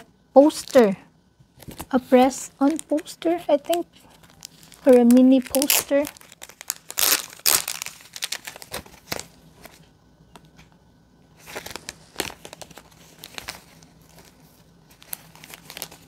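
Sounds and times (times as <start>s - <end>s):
glossy paper rustling: 0.4s - 9.9s, 11.4s - 16.0s
thin plastic crinkling: 1.6s - 10.6s, 11.4s - 16.0s.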